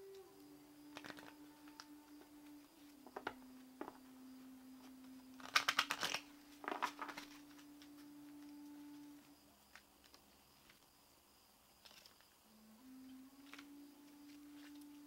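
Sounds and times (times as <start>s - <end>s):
faint steady low tone: 0.0s - 5.5s, 6.2s - 11.6s, 12.3s - 15.0s
cards being shuffled: 0.9s - 1.8s, 5.4s - 7.7s.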